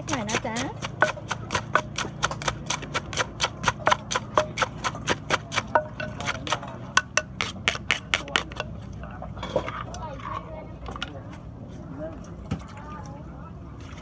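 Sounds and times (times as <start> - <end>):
pestle pounding in a mortar: 0.0 - 8.8.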